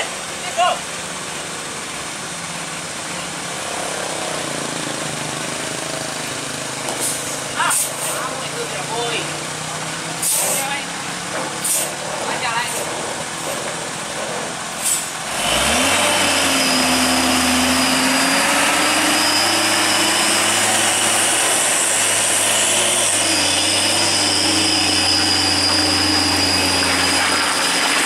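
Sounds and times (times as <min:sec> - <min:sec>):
truck diesel engine revving: 0:00.0 - 0:28.0.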